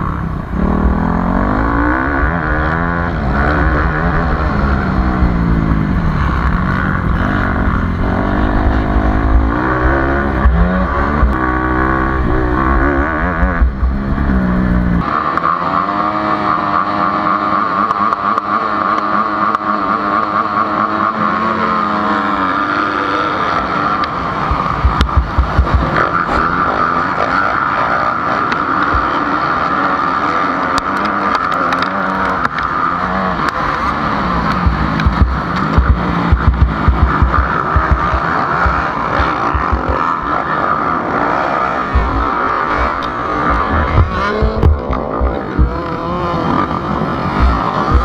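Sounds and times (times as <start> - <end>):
dirt bike engine revving: 0.0 - 48.0
other dirt bike engines: 0.0 - 48.0
wind thuds on microphone: 43.8 - 45.8.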